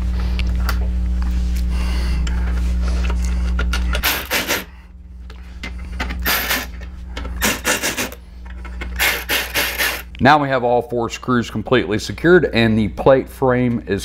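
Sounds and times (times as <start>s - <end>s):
low hum: 0.0s - 14.0s
cordless screwdriver driving screws: 9.0s - 10.0s.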